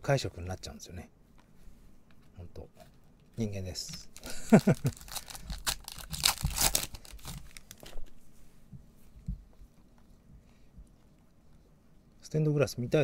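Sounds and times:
foil wrapper tearing and crinkling: 0:04.2 - 0:07.9.

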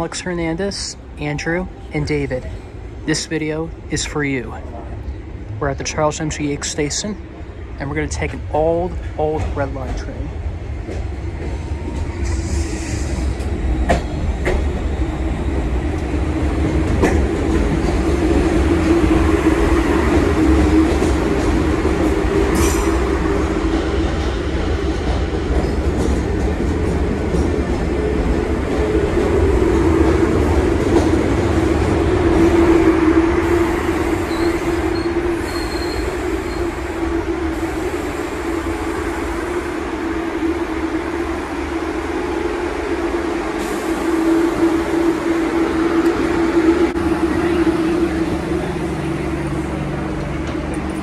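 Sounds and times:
train cars rumbling past: 0:01.0 - 0:51.0
train motor hum: 0:08.3 - 0:51.0.

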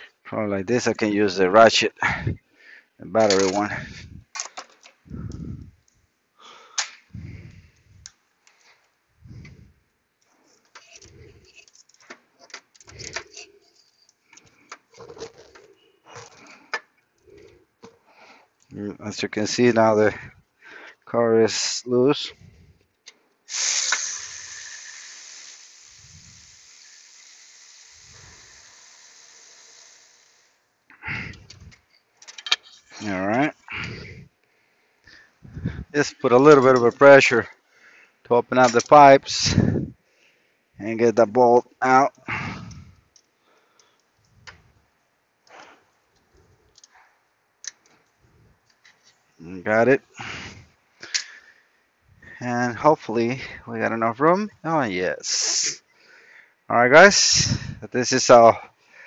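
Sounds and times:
steady hiss: 0:00.0 - 0:22.8, 0:23.4 - 0:59.0
electric ratchet running: 0:23.5 - 0:30.6.

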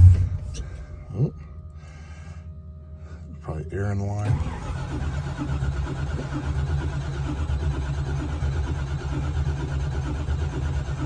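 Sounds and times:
starter motor cranking engine: 0:04.2 - 0:11.0.

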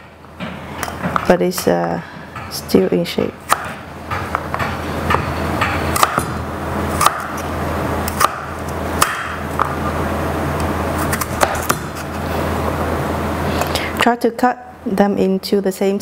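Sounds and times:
steady low hum: 0:00.0 - 0:16.0
knife chopping squash: 0:03.2 - 0:09.8, 0:11.0 - 0:12.2.

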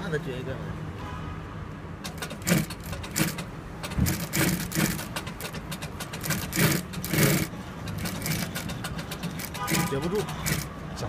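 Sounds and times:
sewing machine stitching: 0:02.1 - 0:10.7.

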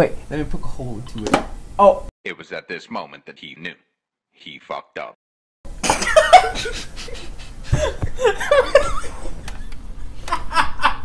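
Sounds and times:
men laughing: 0:05.8 - 0:11.0.

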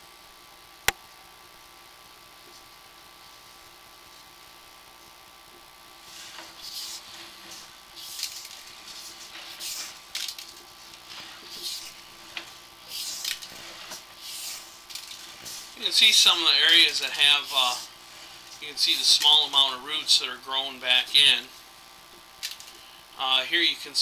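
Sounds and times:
faint hiss and hum: 0:00.0 - 0:24.0
cable rubbing swishes: 0:06.1 - 0:19.5.

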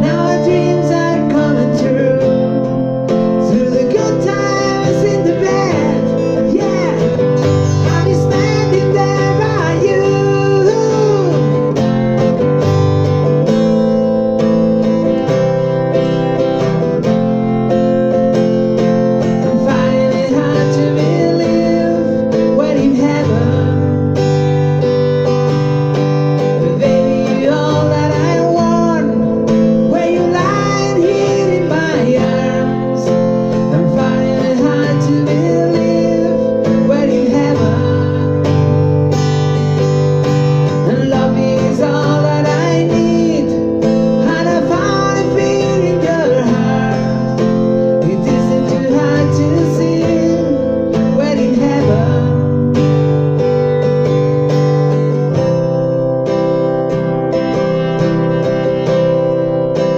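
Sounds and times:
man singing: 0:00.0 - 0:12.5, 0:18.3 - 0:24.9, 0:26.4 - 0:54.2
acoustic guitar strumming: 0:00.0 - 0:59.9.

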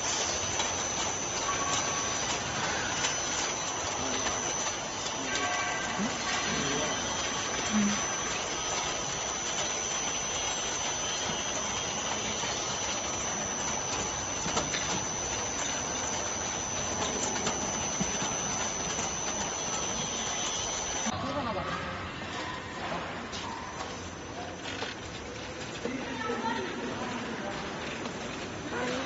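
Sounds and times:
thin high whine: 0:00.0 - 0:21.2
conveyor mechanical noise: 0:00.0 - 0:29.0.

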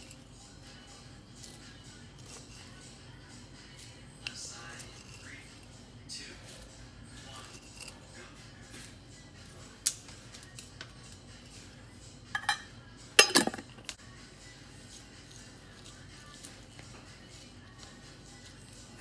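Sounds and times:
metal spoon clinking kitchenware: 0:12.3 - 0:13.8.

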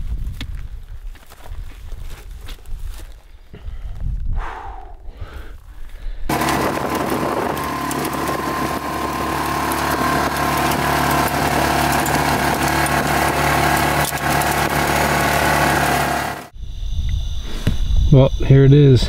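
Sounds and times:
utility vehicle engine running: 0:06.3 - 0:16.6.

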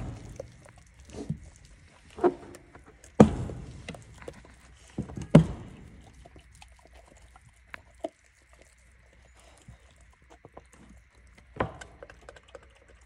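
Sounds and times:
loud bone cracks: 0:00.0 - 0:08.8
dog gnawing bone: 0:00.0 - 0:13.0.

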